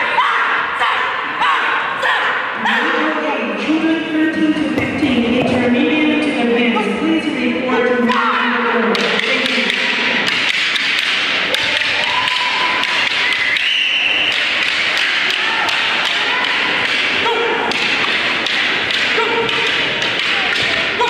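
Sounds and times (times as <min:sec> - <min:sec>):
crowd chatter: 0:00.0 - 0:21.0
staffs tapping: 0:08.9 - 0:21.0.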